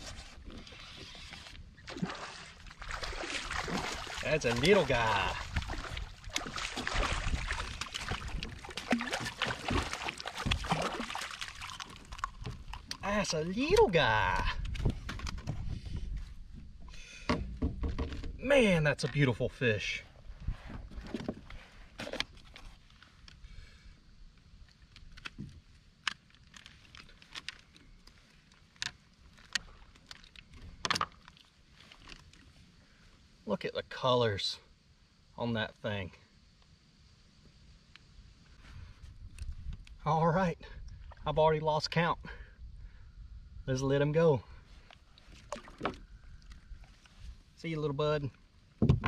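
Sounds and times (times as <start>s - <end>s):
water sloshing: 0.0s - 14.0s, 44.8s - 47.2s
fish splashing: 1.8s - 12.6s.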